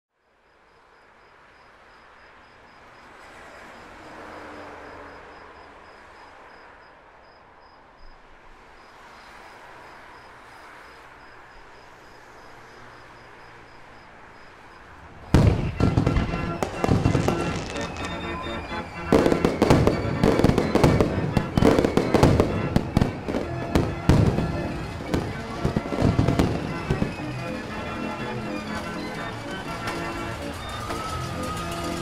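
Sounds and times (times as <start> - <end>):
cricket chirping: 0.2 - 27.5
distant city traffic hum: 0.3 - 32.0
loud firework bang: 15.4 - 29.1.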